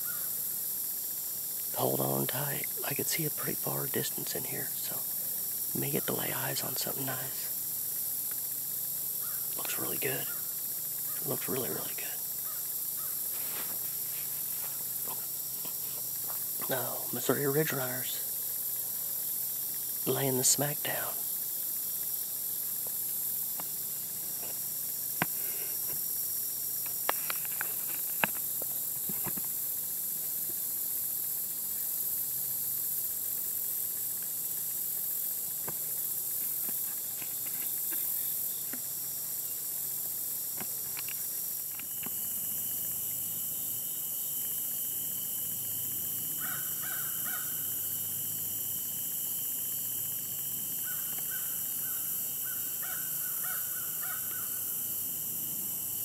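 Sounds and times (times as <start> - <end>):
crows cawing: 0.0 - 0.4, 9.2 - 9.6, 12.4 - 13.3, 46.4 - 47.6, 50.8 - 54.6
high insect hiss: 0.0 - 56.0.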